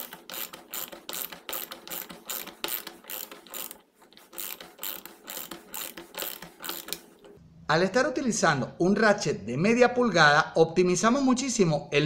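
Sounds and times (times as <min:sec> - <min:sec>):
ratchet clicking: 0:00.0 - 0:07.4.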